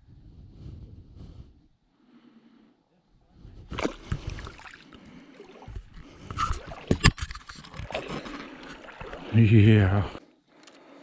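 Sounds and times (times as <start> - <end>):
water splashing and sloshing: 3.7 - 10.2
scrapes: 5.7 - 9.2.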